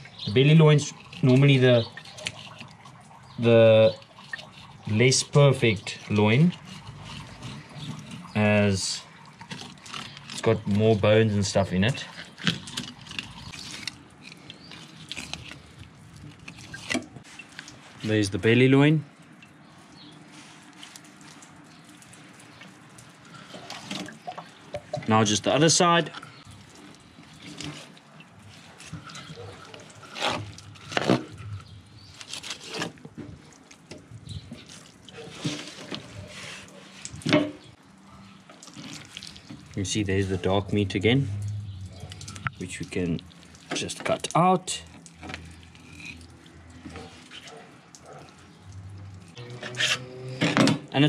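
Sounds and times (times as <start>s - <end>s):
handling noises: 20.0s - 41.0s.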